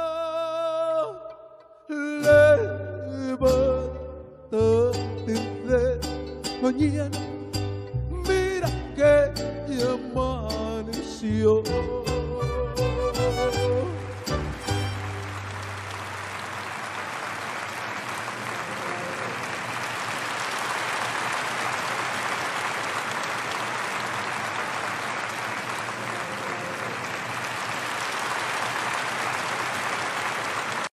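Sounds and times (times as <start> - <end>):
mariachi band closing chord: 12.1 - 15.8
audience applauding: 13.0 - 30.9.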